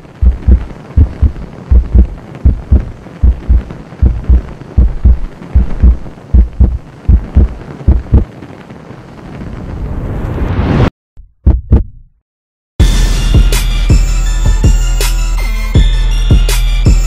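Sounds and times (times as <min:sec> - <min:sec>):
heartbeat thumps: 0:00.0 - 0:08.3, 0:11.2 - 0:12.2.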